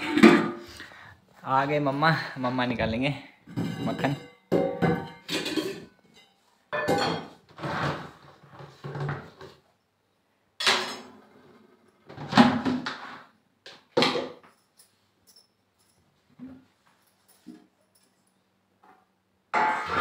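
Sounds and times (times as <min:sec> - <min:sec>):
pots clunking on wooden floor: 0:00.0 - 0:00.7, 0:03.5 - 0:09.6.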